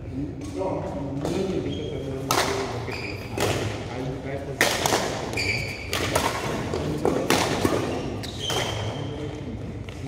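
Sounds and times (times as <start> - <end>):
shoe squeaks on court floor: 1.3 - 2.2, 2.8 - 3.5, 5.3 - 6.2, 7.7 - 9.6
racket striking shuttlecock: 4.6 - 8.9.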